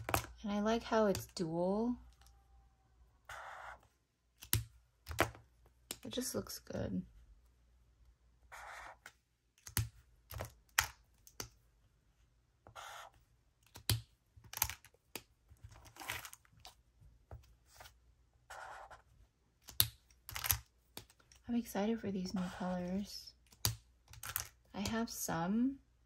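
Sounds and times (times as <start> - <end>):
highlighter scratching on paper: 3.3 - 3.9, 8.5 - 9.1, 12.6 - 13.2, 18.5 - 19.1, 22.2 - 23.1
plastic markers clicking: 19.6 - 21.4.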